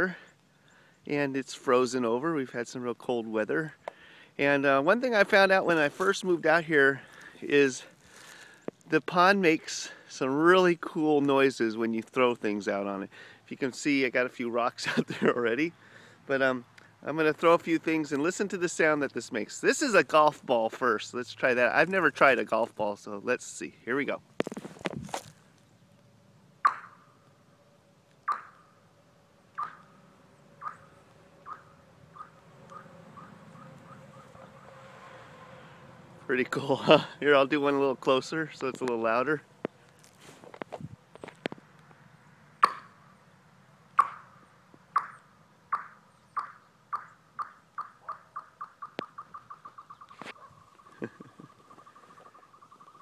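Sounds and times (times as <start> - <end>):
ball bouncing on ice chirps: 26.6 - 27.0.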